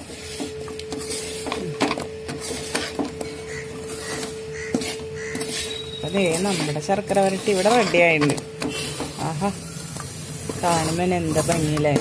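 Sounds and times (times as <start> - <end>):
spatula scraping in a wok: 0.0 - 12.0.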